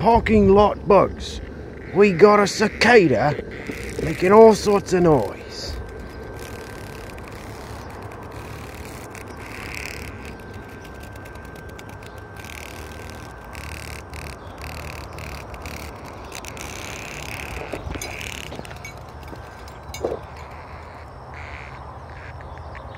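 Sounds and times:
cicada buzzing rattle: 0:00.0 - 0:22.9
steady background noise: 0:00.0 - 0:22.9.

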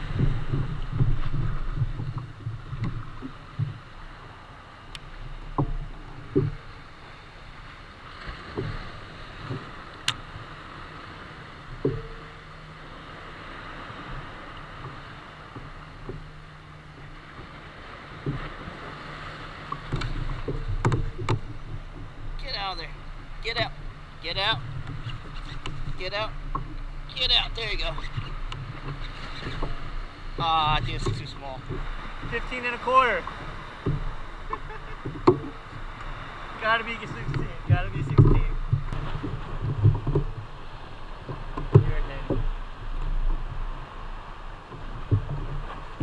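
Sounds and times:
water lapping against kayak hull: 0:00.0 - 0:46.0
wind rumble on microphone: 0:00.0 - 0:46.0
light knocks: 0:19.7 - 0:22.1.

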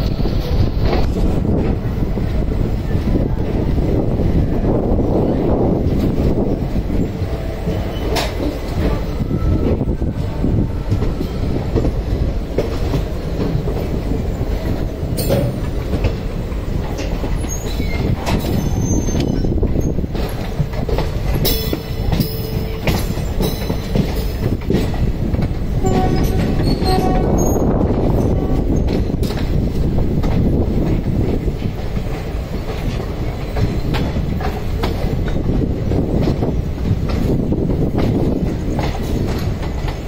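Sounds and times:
train wheels rumbling on rail: 0:00.0 - 0:40.0
wheels clicking over rail joints: 0:05.9 - 0:10.1, 0:10.7 - 0:40.0
thin wheel squeals: 0:17.5 - 0:19.5.

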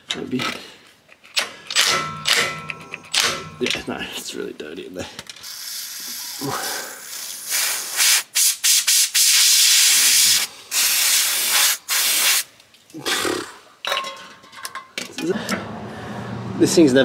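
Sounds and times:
aerosol spray can hissing: 0:05.4 - 0:12.5.

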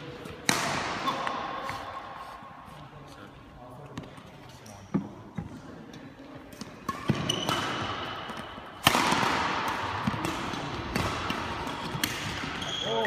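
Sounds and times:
badminton rackets hitting shuttlecocks: 0:00.4 - 0:02.0, 0:06.5 - 0:12.8
shoe squeak: 0:07.0 - 0:07.6, 0:12.5 - 0:13.0.

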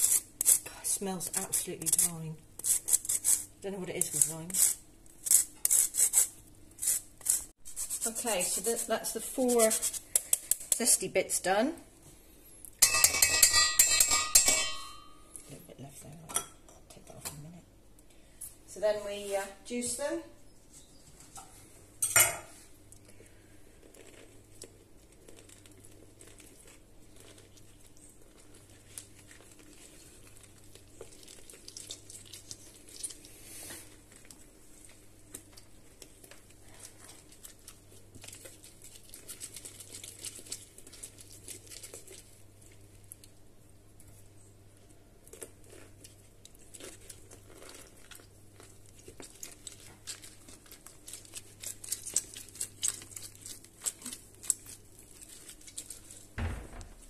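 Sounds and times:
limes squishing on reamer: 0:00.0 - 0:11.0, 0:22.8 - 0:57.0.

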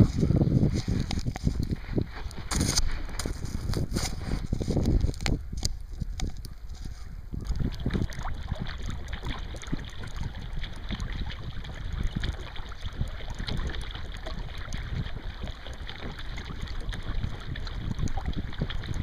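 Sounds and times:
paddle strokes splashing: 0:00.0 - 0:19.0
wind rumble on microphone: 0:00.0 - 0:19.0.

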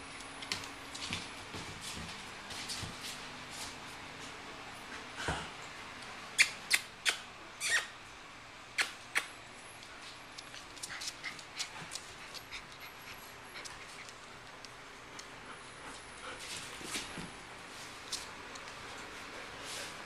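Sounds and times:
puppy yipping: 0:06.4 - 0:08.0
claws ticking on tile floor: 0:09.1 - 0:15.4.

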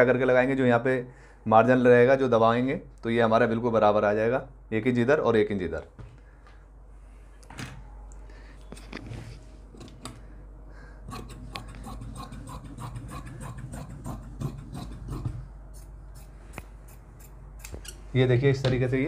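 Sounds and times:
shears snipping fabric: 0:11.1 - 0:18.0.

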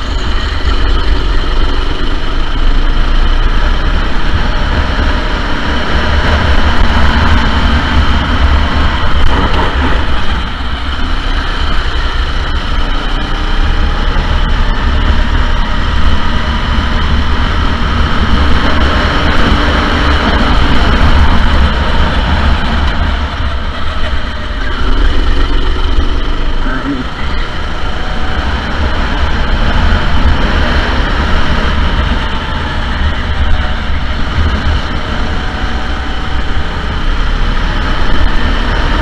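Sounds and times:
go-kart engine running: 0:00.0 - 0:39.0.

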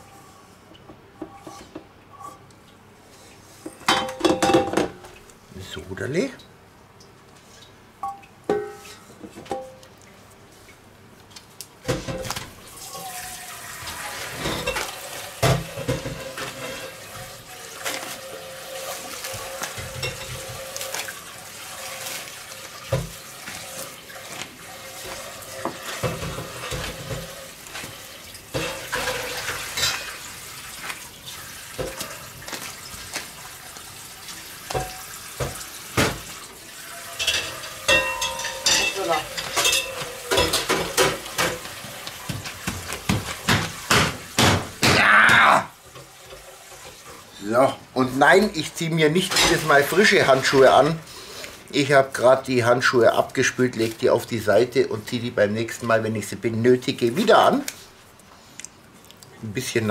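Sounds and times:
cling film crinkling and rustling: 0:30.7 - 0:31.4, 0:32.0 - 0:33.9.

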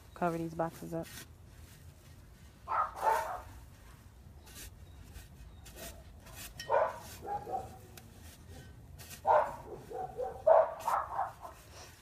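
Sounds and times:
shovel scraping in loose soil: 0:00.0 - 0:12.0
dog barking: 0:02.7 - 0:03.5, 0:06.7 - 0:07.8, 0:09.2 - 0:11.6.

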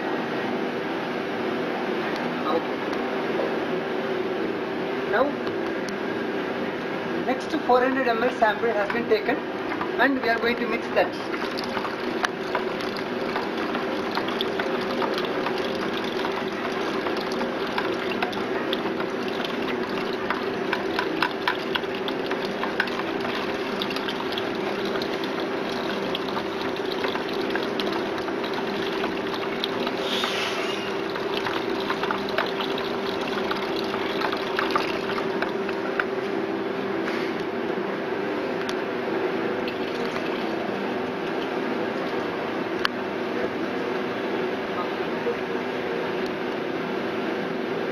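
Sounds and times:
machine hum: 0:05.7 - 0:47.9
stirring with splashes and knocks: 0:08.4 - 0:36.2, 0:39.6 - 0:42.3
liquid pouring into bucket: 0:11.2 - 0:36.2, 0:39.6 - 0:42.2.

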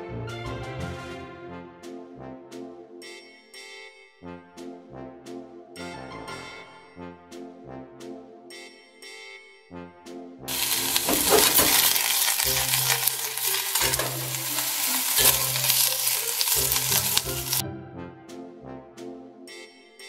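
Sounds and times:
brass background music: 0:00.0 - 0:20.0
cabbage sizzling in a pot: 0:10.5 - 0:17.6.

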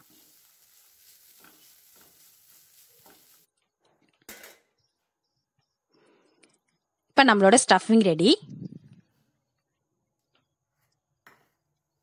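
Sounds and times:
spatula scraping frying pan: 0:00.0 - 0:03.5
light sizzle: 0:00.0 - 0:04.6.

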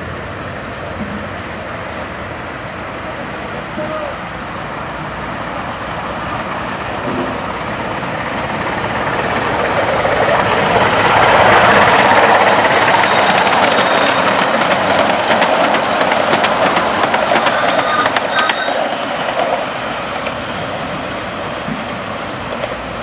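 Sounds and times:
miniature steam locomotive running: 0:05.5 - 0:23.0
wheels clicking over rail joints: 0:07.0 - 0:21.0.

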